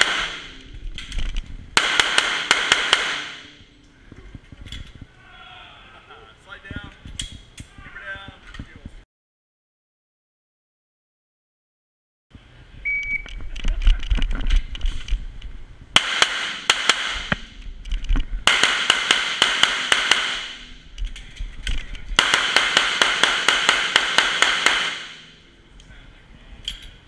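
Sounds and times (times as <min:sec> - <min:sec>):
pistol shots: 0:00.0 - 0:00.6, 0:01.8 - 0:03.6, 0:16.0 - 0:17.5, 0:18.5 - 0:20.7, 0:22.2 - 0:25.3
shot timer beep: 0:12.9 - 0:13.3.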